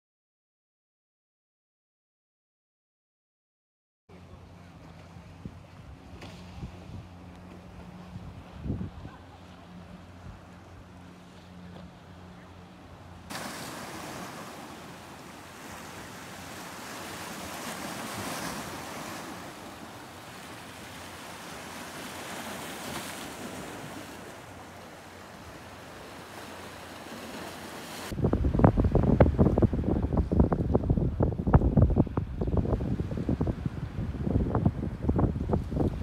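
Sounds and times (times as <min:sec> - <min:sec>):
wind: 0:04.1 - 0:36.0
waves splashing over rocks: 0:13.2 - 0:30.0.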